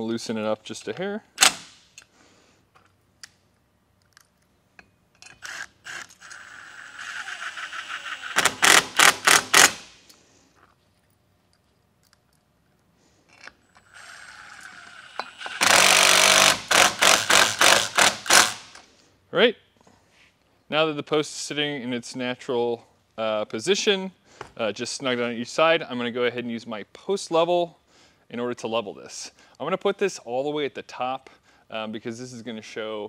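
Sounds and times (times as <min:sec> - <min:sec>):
impact driver whirring and hammering: 0:05.4 - 0:10.0, 0:13.8 - 0:18.8.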